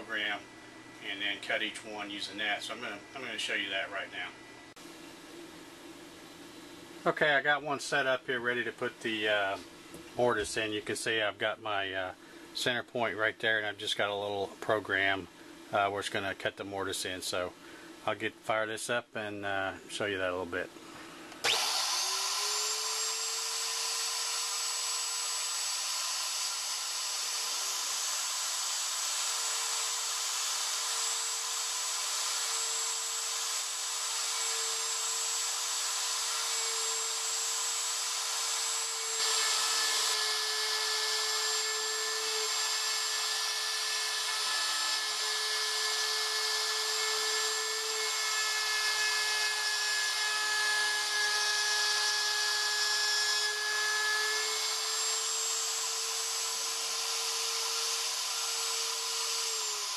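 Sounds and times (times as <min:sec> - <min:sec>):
router spindle whining: 0:21.4 - 0:59.9.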